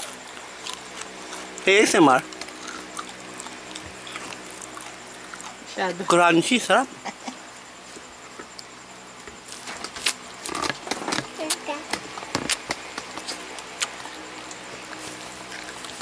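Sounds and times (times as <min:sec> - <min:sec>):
crunching fried chicken: 0:00.0 - 0:05.6.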